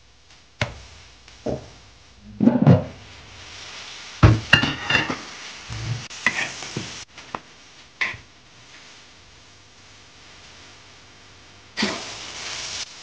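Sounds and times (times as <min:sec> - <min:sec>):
faint sizzle: 0:00.0 - 0:13.0
metal spatula scraping a wok: 0:04.5 - 0:06.7.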